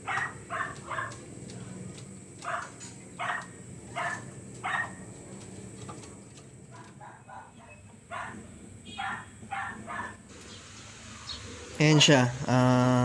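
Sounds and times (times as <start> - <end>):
dog barking: 0.0 - 1.2, 2.4 - 5.1, 6.7 - 10.3.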